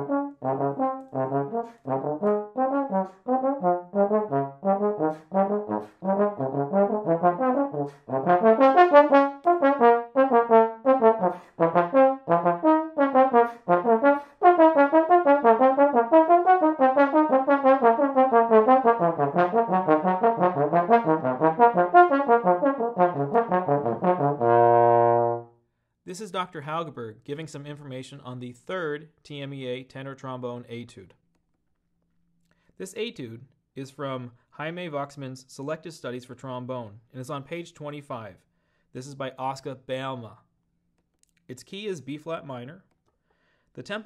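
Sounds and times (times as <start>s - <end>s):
trombone playing: 0.0s - 25.6s.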